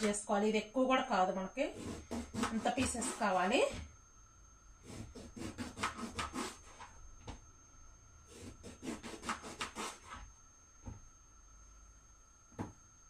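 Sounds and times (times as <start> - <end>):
knife sawing through eggplant: 1.7 - 3.4, 4.8 - 6.8, 8.3 - 10.2.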